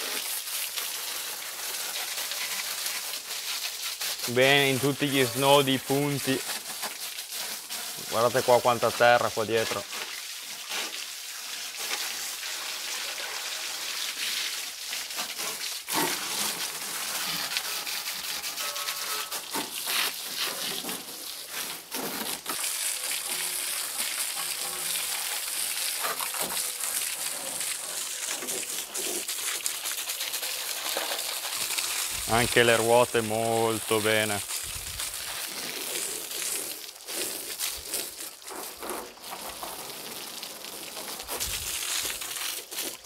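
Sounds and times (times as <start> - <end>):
hose water splashing on tyres: 0.0 - 43.0.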